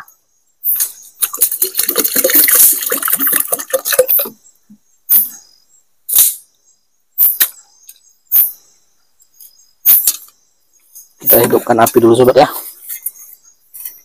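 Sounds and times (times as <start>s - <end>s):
insects chirping: 0.0s - 14.0s
rice grains rattling in metal pot: 1.2s - 4.3s
water swishing in pot: 1.2s - 4.4s.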